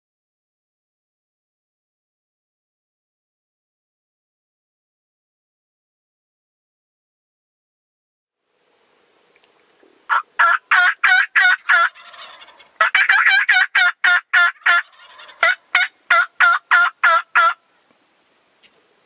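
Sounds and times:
turkey yelping: 10.1 - 17.6.

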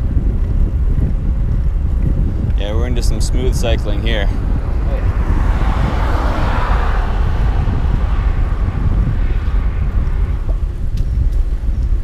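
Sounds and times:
wind buffeting microphone: 0.0 - 12.0
rushing sound: 4.1 - 10.9.

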